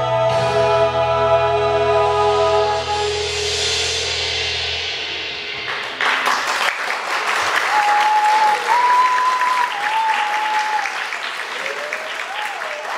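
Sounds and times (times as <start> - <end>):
audience applause: 5.7 - 12.9
whistle-like tone: 8.7 - 10.8.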